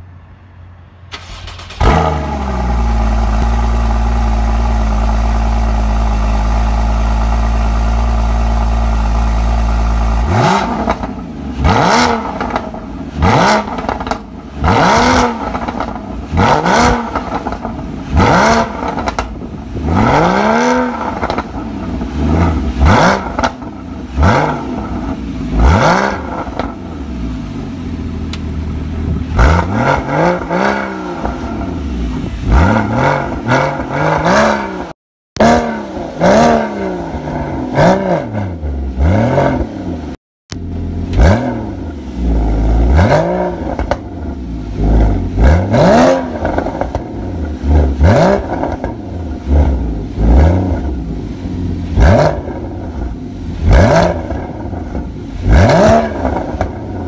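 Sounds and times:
car engine idling: 0.0s - 11.5s, 26.4s - 29.4s
car engine starting: 1.0s - 57.0s
engine revving: 1.1s - 27.0s, 29.2s - 57.0s.

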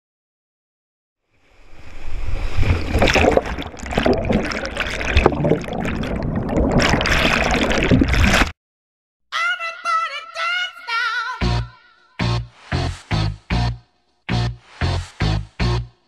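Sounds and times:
knocks and splashes: 2.5s - 8.5s
pop song with singing: 9.3s - 12.2s.

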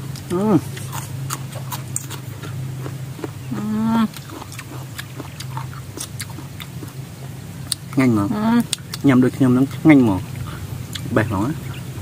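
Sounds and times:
low steady hum: 0.0s - 12.0s
chewing crunches: 0.1s - 7.0s
person humming: 3.5s - 4.2s.

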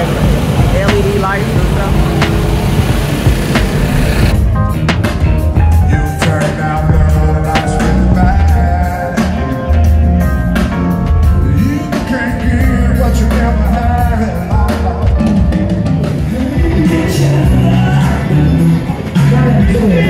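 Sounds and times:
music with heavy bass and drums: 0.0s - 20.0s
person singing: 5.7s - 10.3s, 11.3s - 20.0s.

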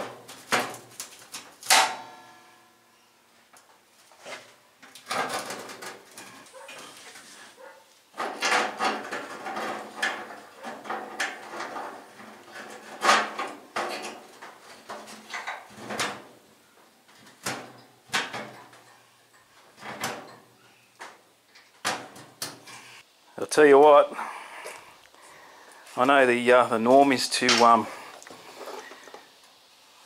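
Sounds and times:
sheet steel knocks and clanks: 8.2s - 16.3s.

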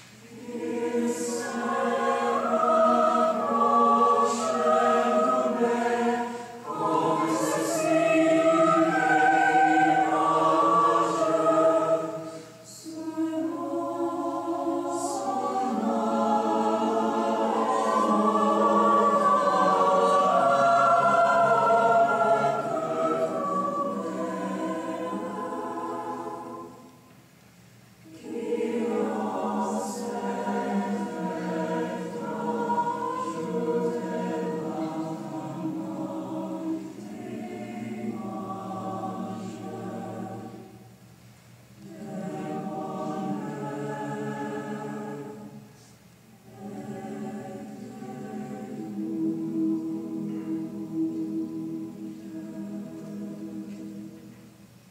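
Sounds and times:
choir singing held chords: 0.0s - 27.3s, 28.0s - 54.9s.

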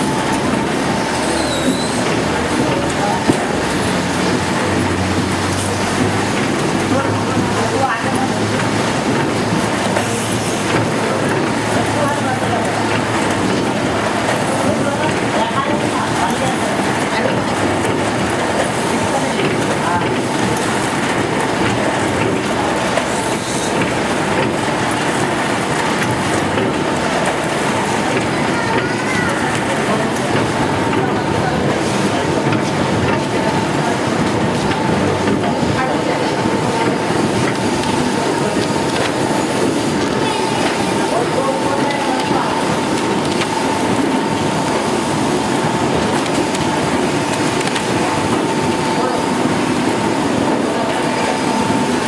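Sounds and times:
die-cutting machine rattling: 0.0s - 52.0s.

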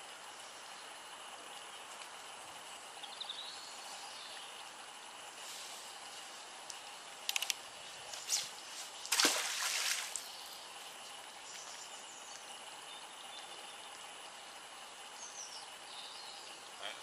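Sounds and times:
quick clicks: 6.6s - 7.6s
magnet splashing in water: 9.0s - 10.3s.

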